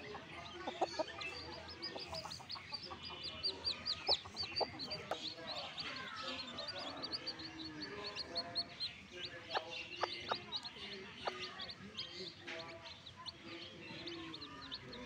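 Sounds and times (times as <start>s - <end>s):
chicks peeping: 0.0s - 15.0s
hen clucking: 0.0s - 15.0s.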